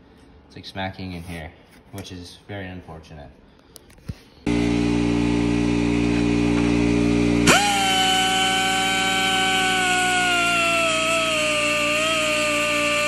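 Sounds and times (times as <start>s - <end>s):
rotary tool high whine cutting: 4.5s - 13.0s
rotary tool hum: 4.5s - 13.0s.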